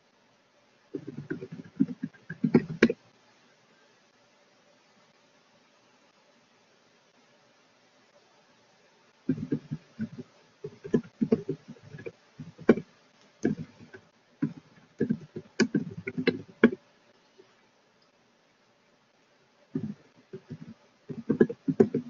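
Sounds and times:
computer keyboard typing: 1.0 - 3.0, 9.3 - 12.8, 13.4 - 16.8, 19.8 - 22.0.

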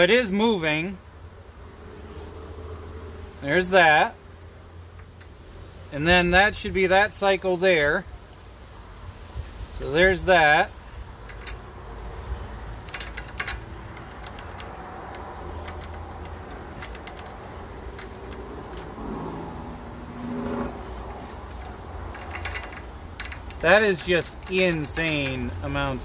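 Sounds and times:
light metal clicks and rattles: 4.8 - 5.4, 11.0 - 19.2, 20.2 - 26.0.

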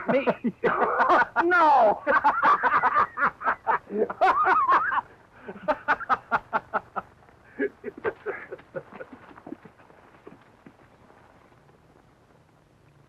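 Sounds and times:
man laughing: 0.0 - 9.8.

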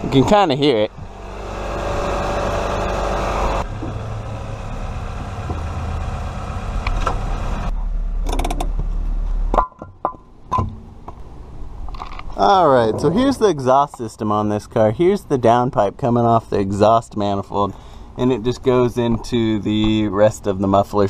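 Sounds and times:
car engine idling with exhaust ticking: 0.9 - 10.3.

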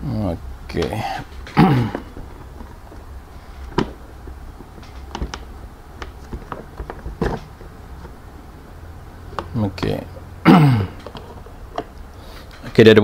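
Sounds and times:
plastic housing clicking and creaking: 0.8 - 8.2, 11.0 - 12.8.

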